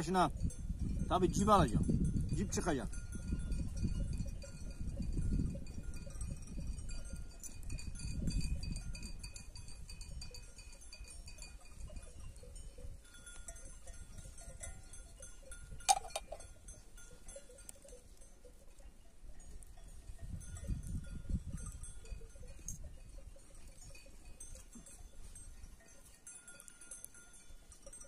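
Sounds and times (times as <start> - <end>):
sheep bells jingling: 0.0 - 28.0
sharp metallic clink: 15.9 - 16.4.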